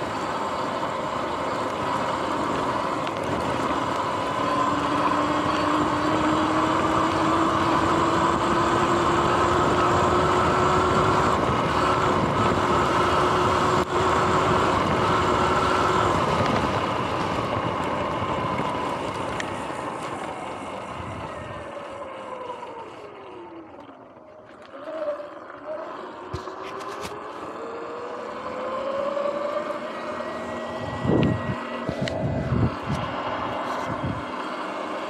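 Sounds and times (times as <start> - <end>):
electric motor whining: 0.0 - 35.0
wind rush: 30.7 - 34.3.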